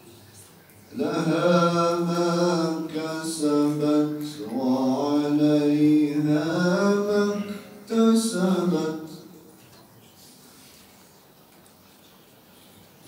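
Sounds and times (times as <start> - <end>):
man chanting into a microphone: 0.9 - 9.5.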